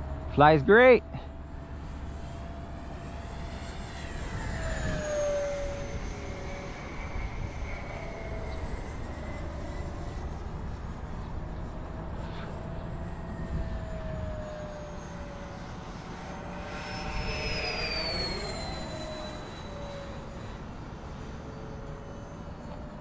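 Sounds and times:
model jet whining in flight: 0:00.0 - 0:23.0.

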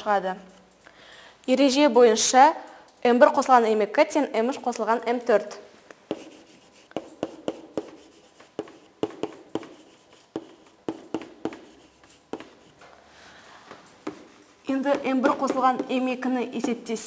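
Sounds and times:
chalk tapping and scratching: 0:06.0 - 0:12.9, 0:13.6 - 0:17.0.

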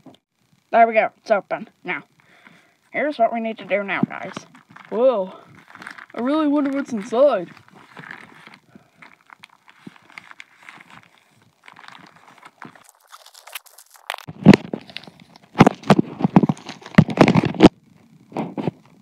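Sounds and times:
plastic bag crinkling: 0:03.6 - 0:17.7.

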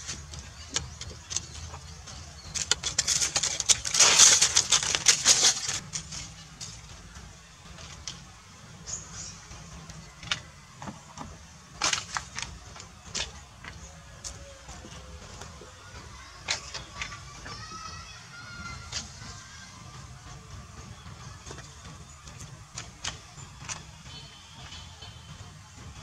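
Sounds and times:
scratchy rustling: 0:00.0 - 0:06.8
macaques scuffling: 0:00.0 - 0:17.9.

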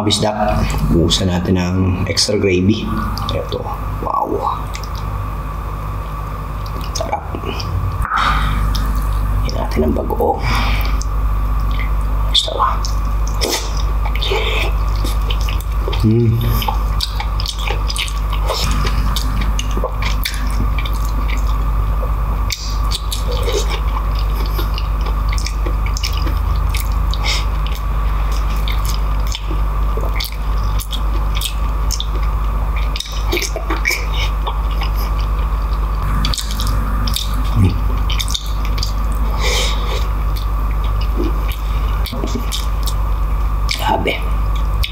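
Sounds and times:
steady low hum: 0:00.0 - 0:44.9
wet chewing and lip smacking: 0:06.6 - 0:07.8, 0:10.8 - 0:16.0, 0:16.6 - 0:43.0, 0:43.6 - 0:43.9, 0:44.5 - 0:44.9.

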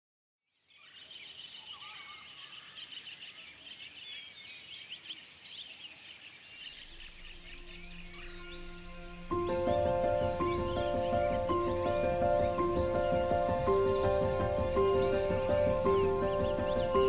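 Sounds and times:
small birds chirping: 0:00.6 - 0:17.0
low sustained music notes: 0:06.7 - 0:17.0.

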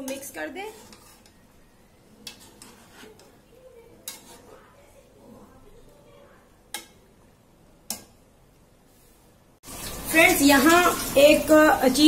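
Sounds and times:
metal spatula scraping a pot: 0:00.0 - 0:05.5.

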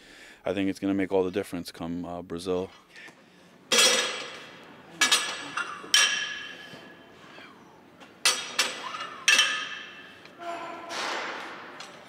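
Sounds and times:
weight plates clanking: 0:03.7 - 0:07.1, 0:08.2 - 0:12.0.

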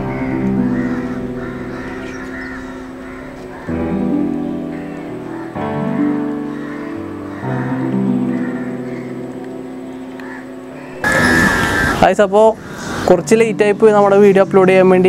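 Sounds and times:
held chords: 0:00.0 - 0:15.0
wavering melody line: 0:10.9 - 0:12.6.

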